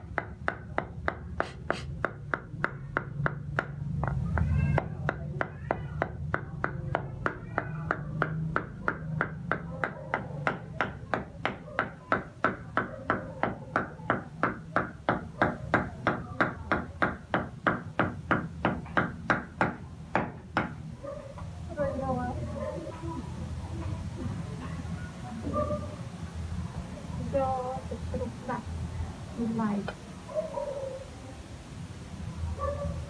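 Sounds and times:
cleaver chopping meat on wood: 0.0s - 20.8s.

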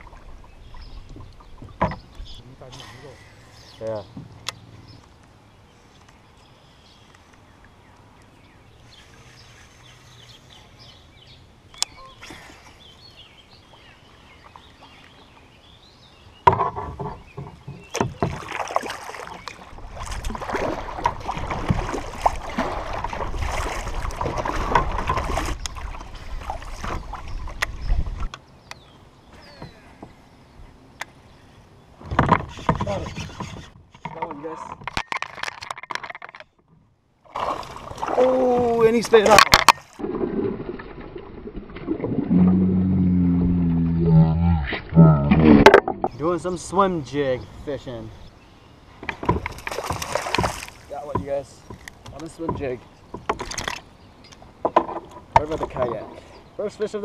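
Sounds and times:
water splashing and sloshing: 0.0s - 5.4s, 11.6s - 30.3s, 31.9s - 48.0s, 48.8s - 57.0s
paddle knocking on kayak: 49.0s - 53.6s.

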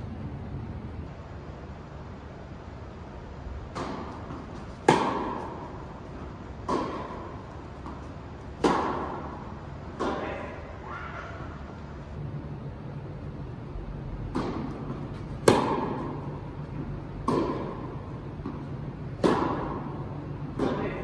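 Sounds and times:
tennis ball impacts echoing: 3.6s - 10.9s, 14.0s - 21.0s.

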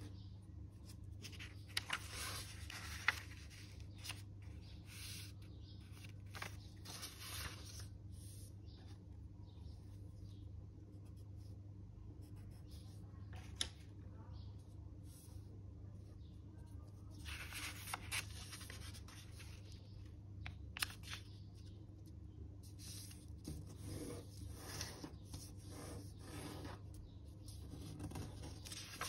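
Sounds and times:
faint low hum: 0.0s - 29.0s
paper rustling and rubbing: 0.8s - 8.5s, 17.1s - 19.8s, 22.6s - 29.0s.

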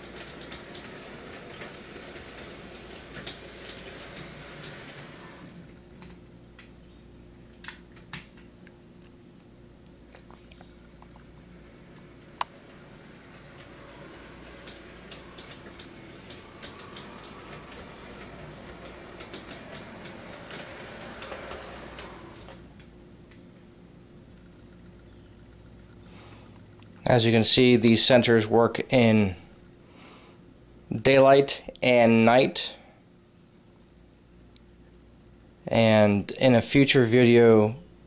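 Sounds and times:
model train wheels clicking: 0.0s - 5.6s, 11.9s - 22.7s.

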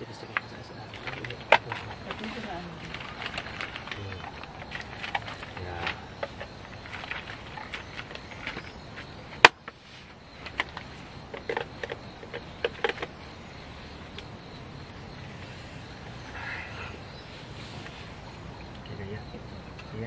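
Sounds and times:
faint steady hiss: 0.0s - 20.0s
objects being handled and set down: 0.3s - 13.2s.

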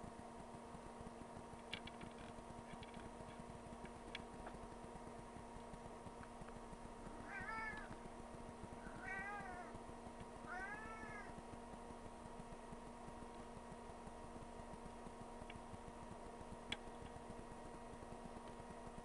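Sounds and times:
steady low hum: 0.0s - 19.0s
cat meowing: 7.3s - 7.9s, 8.9s - 9.7s, 10.5s - 11.3s.

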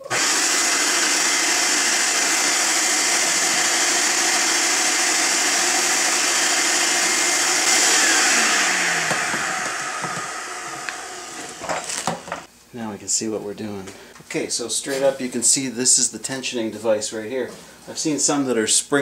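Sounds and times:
shop vacuum running: 0.0s - 12.5s
vacuum motor winding down: 0.0s - 12.5s.

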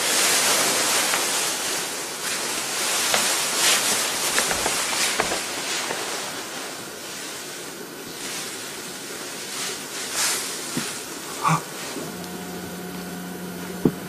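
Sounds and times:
heavy breathing: 10.8s - 12.2s.

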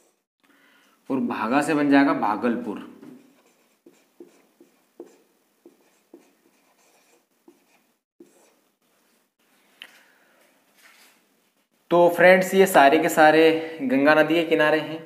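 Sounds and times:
marker writing on whiteboard: 3.0s - 8.6s.

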